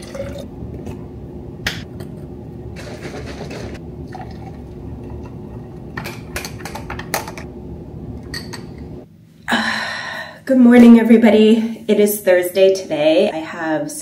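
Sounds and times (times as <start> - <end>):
drink pouring into glass: 0.0 - 0.5, 4.0 - 5.3
low hum: 0.0 - 10.4.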